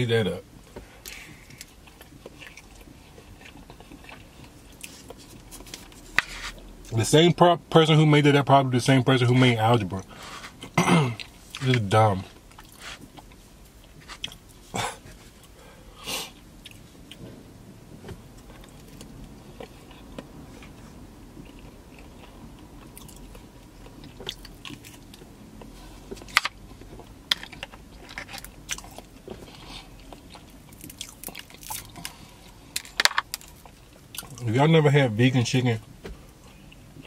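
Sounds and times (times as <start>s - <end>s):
close-up chewing: 0.9s - 6.9s, 18.3s - 34.4s
sharp crunches and clicks: 26.1s - 34.6s.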